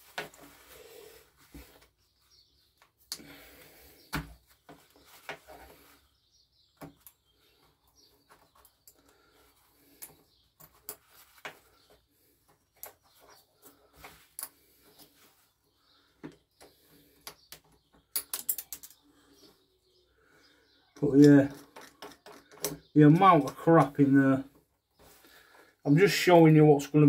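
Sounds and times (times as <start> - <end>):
steel pick clicking and scraping: 18.1 - 19.0.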